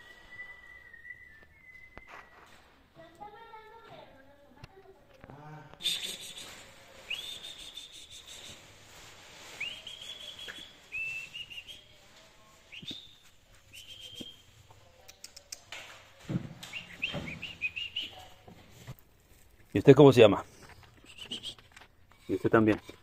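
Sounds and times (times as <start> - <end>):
bird singing whistled notes: 0.0 - 2.5, 9.6 - 11.9, 12.7 - 14.5, 16.7 - 18.3, 21.0 - 21.6.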